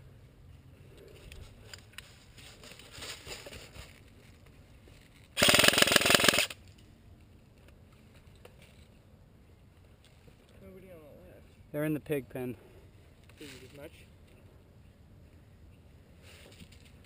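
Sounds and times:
airsoft rifle automatic burst: 0:05.4 - 0:06.6.

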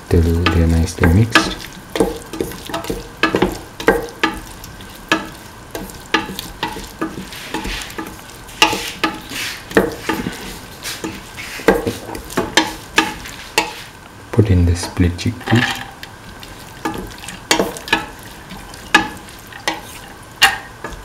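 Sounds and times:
vegetables sizzling in oil: 0:00.0 - 0:21.0
spatula scraping steel pot: 0:05.0 - 0:13.9, 0:16.6 - 0:20.6.

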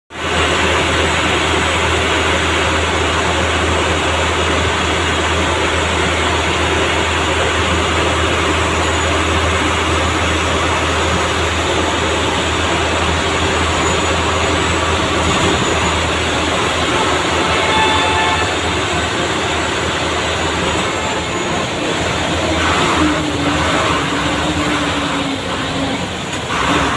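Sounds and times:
bus engine drone: 0:00.1 - 0:26.9
road noise on wet road: 0:00.1 - 0:26.9
bus horn: 0:13.8 - 0:26.9.

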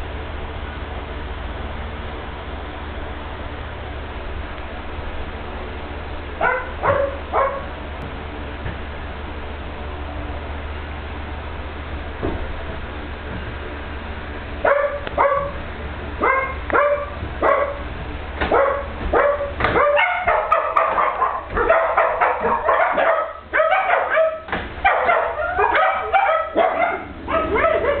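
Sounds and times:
low steady hum: 0:00.0 - 0:28.0
animal yapping: 0:06.4 - 0:07.7, 0:18.5 - 0:28.0.

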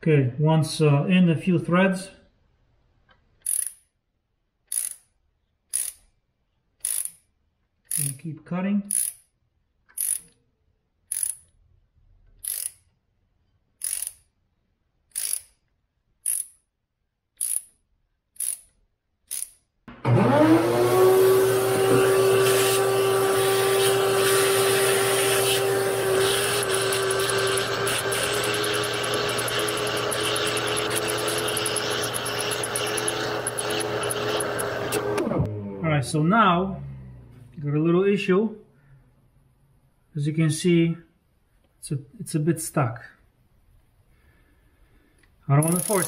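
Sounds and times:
ratchet clicking: 0:03.4 - 0:03.9, 0:04.6 - 0:06.1, 0:06.8 - 0:08.2, 0:08.9 - 0:09.3, 0:09.9 - 0:10.4, 0:11.1 - 0:11.6, 0:12.3 - 0:13.0, 0:13.8 - 0:14.4, 0:15.1 - 0:16.7, 0:17.3 - 0:19.7, 0:26.2 - 0:35.0, 0:45.6 - 0:46.0
shop vacuum whining: 0:19.9 - 0:37.6, 0:45.6 - 0:46.0.

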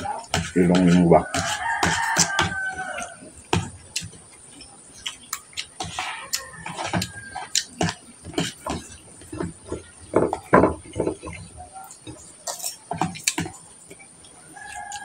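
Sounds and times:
rooster crowing: 0:01.1 - 0:03.4, 0:05.8 - 0:07.7, 0:14.4 - 0:15.0
shrimp being peeled: 0:14.6 - 0:15.0.

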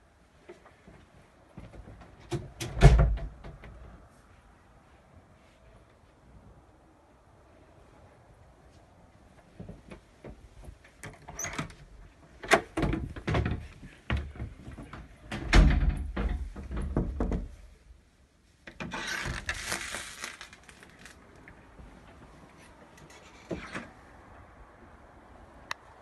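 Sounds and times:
door opening: 0:11.0 - 0:14.3.

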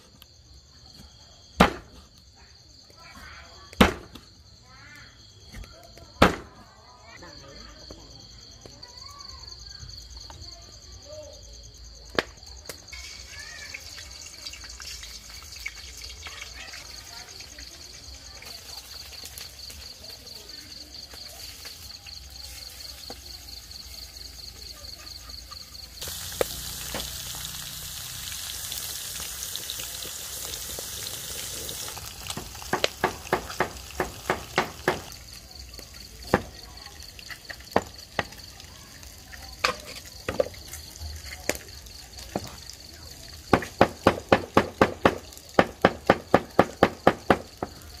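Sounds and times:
fish sizzling in hot oil: 0:12.6 - 0:48.0.

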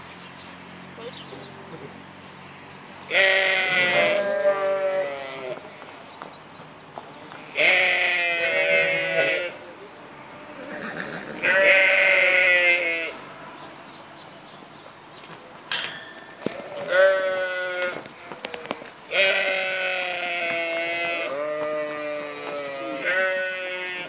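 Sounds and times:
sheep bleating: 0:03.1 - 0:05.8, 0:07.3 - 0:09.6, 0:10.2 - 0:13.2, 0:16.5 - 0:24.0.

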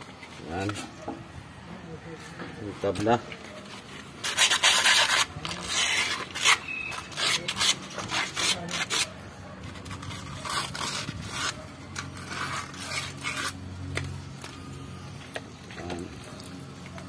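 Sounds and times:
wet sandpaper rubbing metal: 0:03.8 - 0:13.7.

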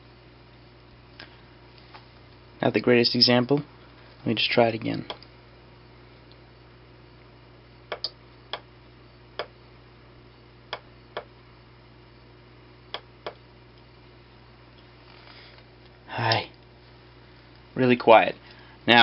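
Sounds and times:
circuit board clicks: 0:07.9 - 0:08.7.

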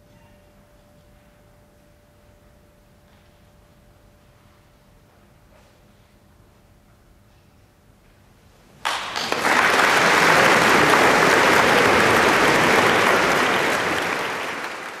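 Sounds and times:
audience applause: 0:08.8 - 0:15.0.

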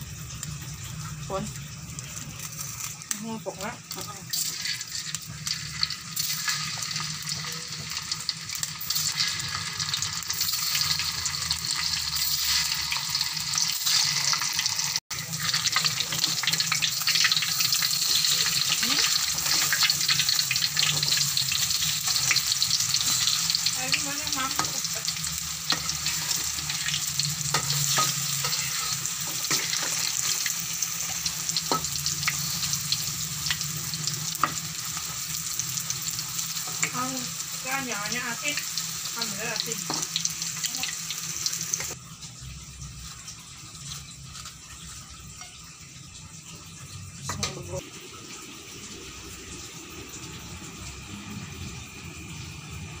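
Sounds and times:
food sizzling in a wok: 0:00.0 - 0:53.0
spatula scraping a pan: 0:25.7 - 0:30.5.

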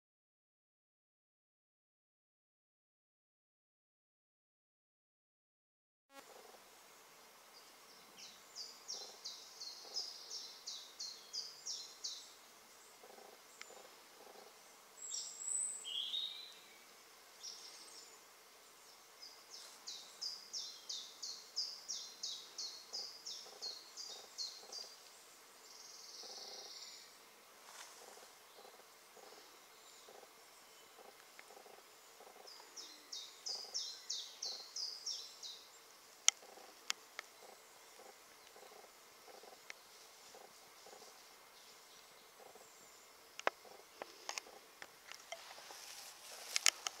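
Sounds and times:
songbirds singing: 0:07.5 - 0:27.3, 0:28.0 - 0:47.0.

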